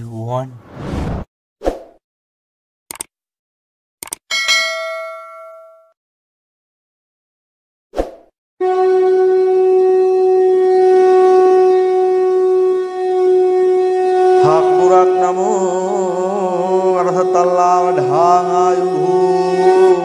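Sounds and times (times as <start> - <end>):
reedy drone: 8.7 - 20.0.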